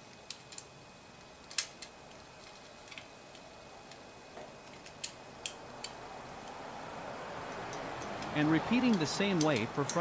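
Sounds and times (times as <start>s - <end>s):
light metal clicks: 7.5s - 10.0s.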